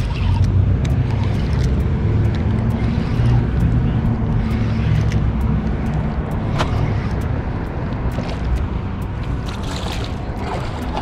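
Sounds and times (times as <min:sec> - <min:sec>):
fishing reel clicks: 0:00.0 - 0:07.3.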